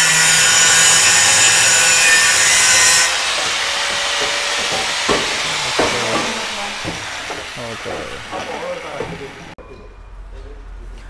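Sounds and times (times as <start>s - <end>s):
power tool cutting metal pipe: 0.0s - 9.4s
sharp knocks: 3.3s - 9.3s.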